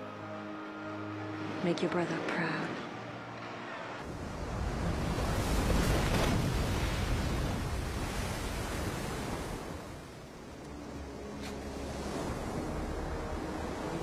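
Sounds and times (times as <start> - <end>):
wind: 0.0 - 14.0
surf breaking on sandy shore: 4.1 - 10.2.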